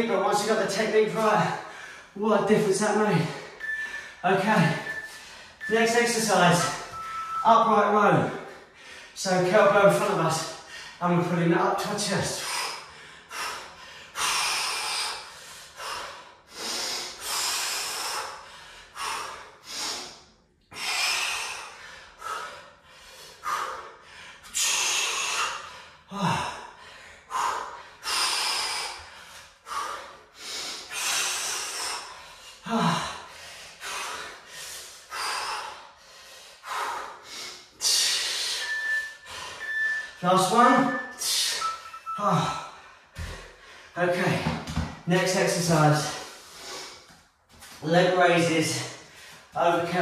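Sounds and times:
interval timer beep: 0:03.3 - 0:08.0, 0:38.5 - 0:43.3
man breathing forcefully: 0:12.3 - 0:41.6, 0:42.6 - 0:45.0, 0:46.2 - 0:47.3
man grunting: 0:32.7 - 0:33.1.

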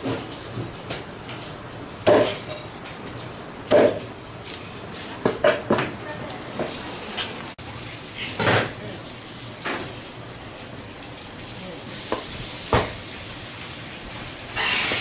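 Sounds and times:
steady hiss: 0:11.4 - 0:15.0.

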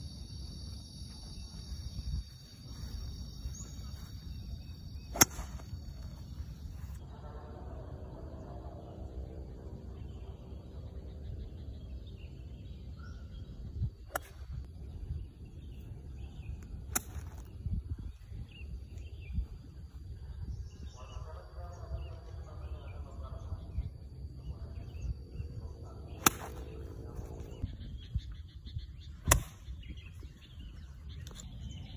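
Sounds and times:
faint bird chirps: 0:00.0 - 0:31.9
outdoor background noise: 0:00.0 - 0:31.9
golf club striking ball: 0:05.2 - 0:05.8, 0:26.2 - 0:26.6.

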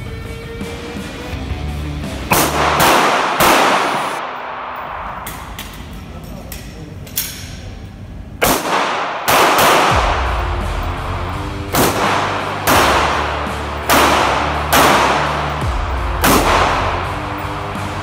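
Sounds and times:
background music with bass: 0:00.0 - 0:03.8, 0:09.8 - 0:18.0
pistol shots with echo: 0:02.3 - 0:05.7, 0:08.4 - 0:10.4, 0:11.7 - 0:17.2.

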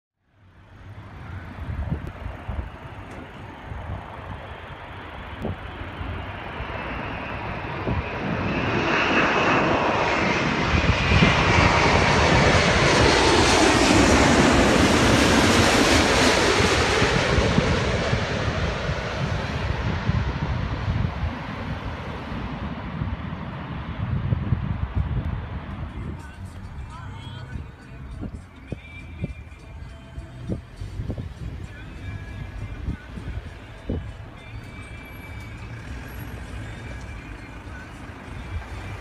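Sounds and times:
falling jet engine whine: 0:00.4 - 0:28.4, 0:30.5 - 0:39.0
jet engines of airliner passing: 0:00.4 - 0:28.4, 0:31.0 - 0:39.0.

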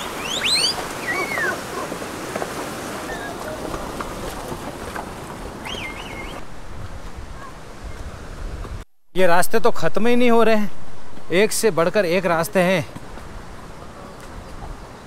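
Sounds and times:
short high whistled calls: 0:00.0 - 0:01.6, 0:05.6 - 0:06.4
stream rushing over rocks: 0:00.0 - 0:08.8.

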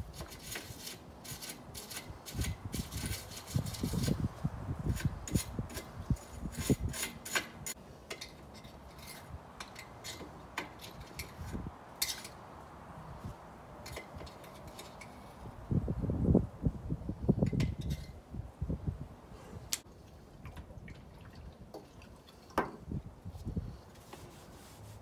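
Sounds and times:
metal tool scraping aluminum frame: 0:00.0 - 0:04.3, 0:04.9 - 0:12.4, 0:13.8 - 0:15.5.

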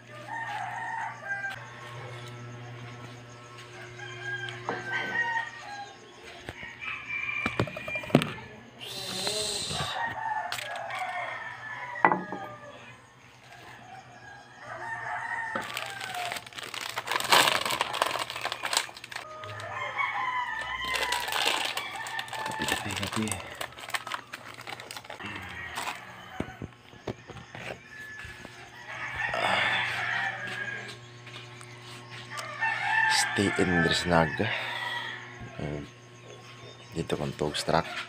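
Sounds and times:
roosters crowing: 0:00.0 - 0:38.0
plastic sachet crinkling: 0:15.6 - 0:19.6, 0:20.8 - 0:26.0.

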